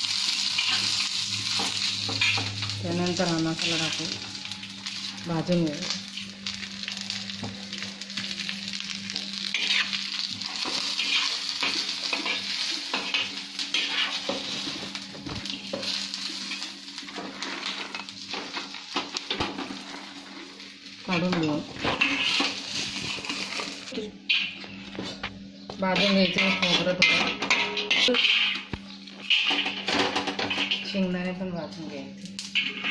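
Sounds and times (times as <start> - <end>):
spices sizzling in a pan: 0.0 - 32.9
spoon stirring and scraping pan: 0.6 - 2.6, 9.5 - 19.7, 21.1 - 31.0, 32.6 - 32.9.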